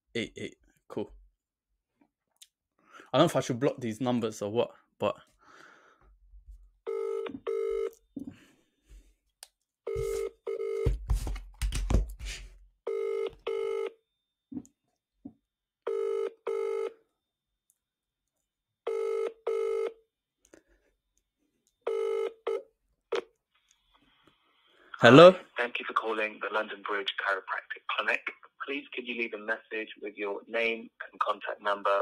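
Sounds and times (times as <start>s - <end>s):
telephone ringback tone: 6.9s - 7.9s, 9.9s - 10.9s, 12.9s - 14.0s, 15.9s - 16.9s, 18.9s - 19.9s, 21.9s - 22.6s.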